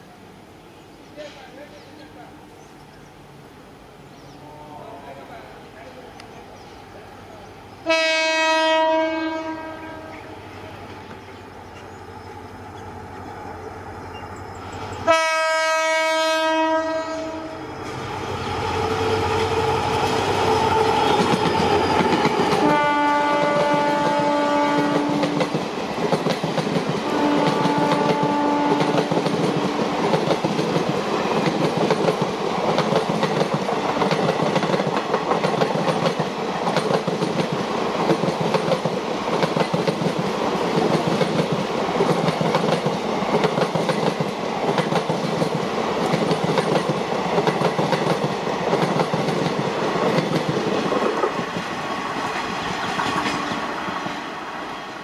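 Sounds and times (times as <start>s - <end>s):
locomotive rumbling past: 1.2s - 55.0s
locomotive horn blasts: 7.8s - 10.3s, 15.0s - 17.6s, 22.6s - 25.3s, 27.0s - 29.0s
train coaches clickety-clack: 17.8s - 55.0s.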